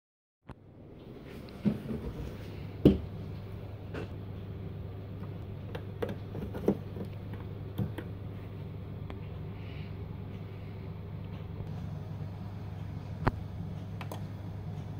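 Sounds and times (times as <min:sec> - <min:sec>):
steady low hum: 0:00.5 - 0:14.9
handling knocks and clicks: 0:05.2 - 0:08.2.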